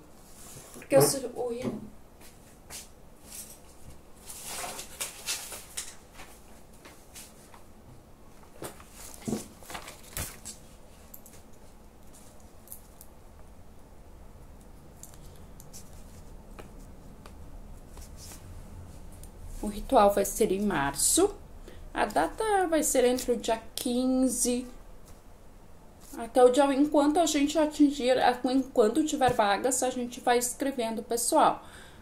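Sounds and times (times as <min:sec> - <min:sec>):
rustling of handled objects: 0:02.2 - 0:13.5, 0:14.6 - 0:19.8.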